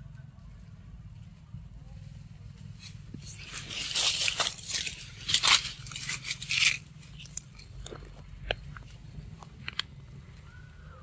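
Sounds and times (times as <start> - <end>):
crunchy bites: 2.8 - 10.5
monkey chewing wet fruit: 3.0 - 10.4.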